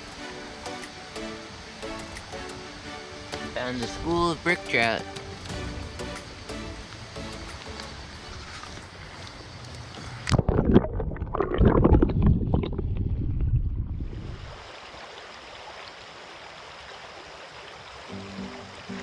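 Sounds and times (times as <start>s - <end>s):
stream rushing: 0.0s - 10.0s, 14.2s - 19.0s.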